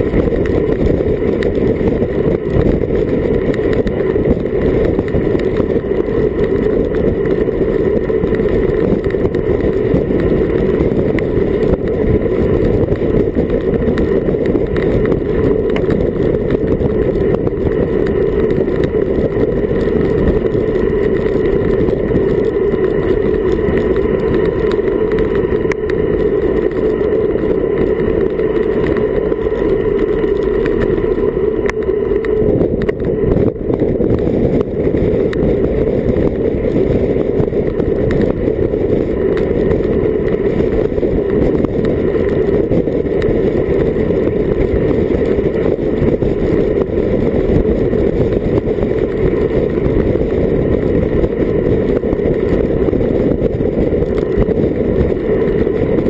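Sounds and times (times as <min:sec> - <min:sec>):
wind rush on microphone: 0:00.0 - 0:56.0.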